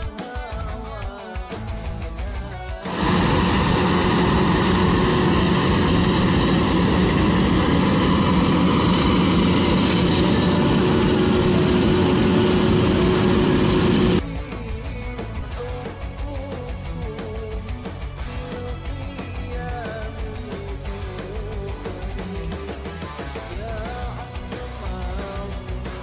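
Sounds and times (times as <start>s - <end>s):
combine harvester engine running: 2.8s - 14.2s.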